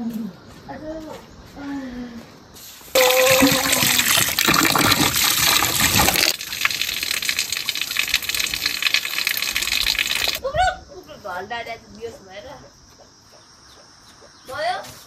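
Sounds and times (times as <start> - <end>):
water gushing into metal pot: 3.0 - 10.4.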